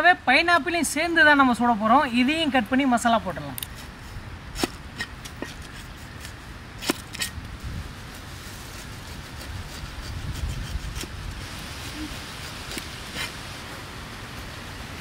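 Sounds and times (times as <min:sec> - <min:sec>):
cleaver chopping on wood: 0:04.6 - 0:07.3
blade paring rind: 0:04.6 - 0:07.4.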